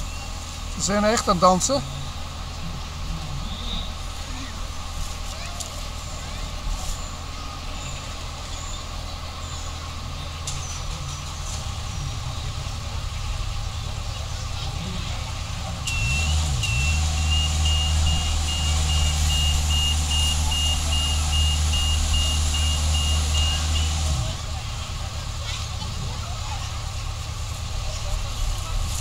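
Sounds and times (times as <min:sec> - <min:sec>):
diesel engine revving: 0:00.0 - 0:29.0
warning beeper: 0:15.8 - 0:24.4.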